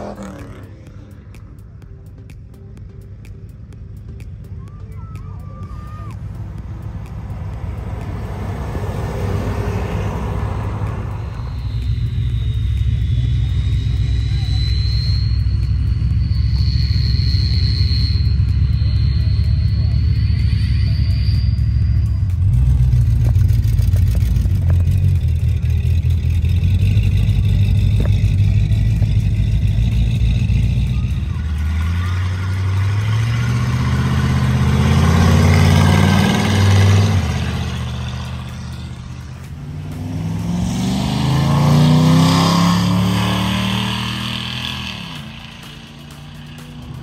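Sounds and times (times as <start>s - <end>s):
cars driving past: 0.0s - 4.6s, 5.2s - 47.0s
steady low rumble: 0.0s - 42.4s.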